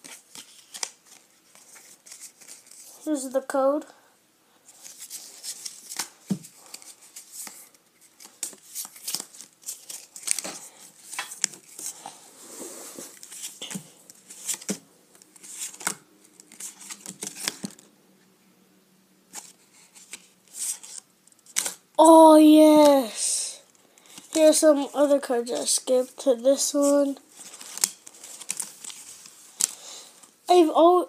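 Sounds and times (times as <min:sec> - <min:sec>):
cards flipped by hand: 0:00.0 - 0:02.9, 0:04.8 - 0:12.1, 0:13.0 - 0:17.9, 0:19.3 - 0:21.8, 0:26.8 - 0:29.8.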